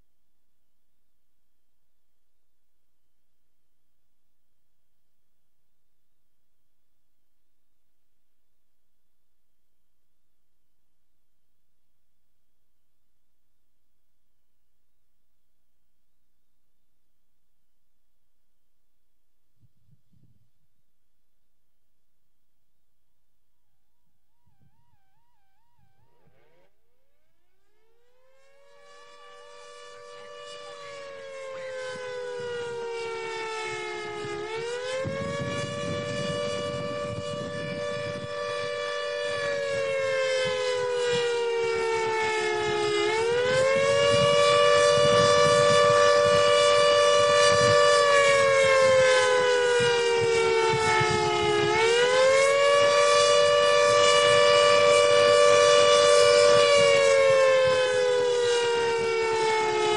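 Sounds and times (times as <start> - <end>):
warning siren wailing: 23.8 - 59.9.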